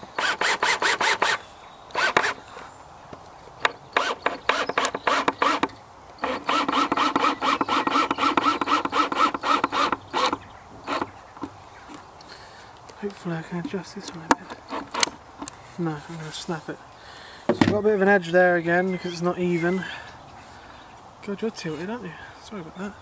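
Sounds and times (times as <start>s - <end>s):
cordless drill driving a screw: 0.0s - 2.4s, 3.6s - 11.5s, 14.4s - 15.6s
rapid clicking pulses: 3.6s - 12.3s.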